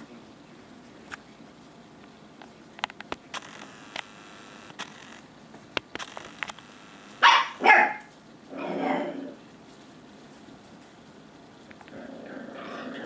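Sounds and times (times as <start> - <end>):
faint clicks: 2.8 - 5.2, 5.8 - 7.2
puppy barking: 7.2 - 8.1.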